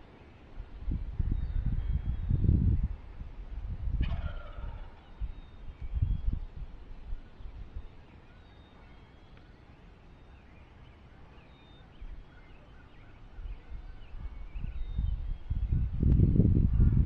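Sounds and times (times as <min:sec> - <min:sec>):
bird chirps: 0:04.7 - 0:16.4.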